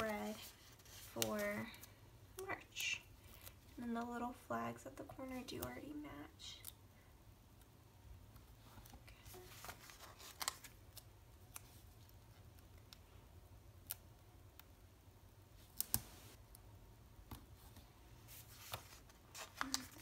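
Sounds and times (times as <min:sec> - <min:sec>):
paper rustling: 0:00.0 - 0:02.0, 0:08.6 - 0:11.8, 0:17.6 - 0:20.0.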